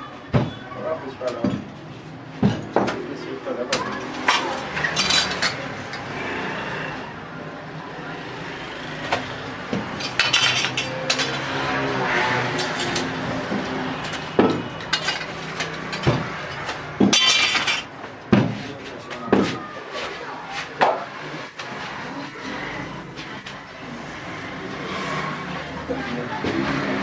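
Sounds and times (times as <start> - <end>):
metal utensils clinking: 3.8 - 6.1, 9.9 - 11.6, 12.4 - 17.9.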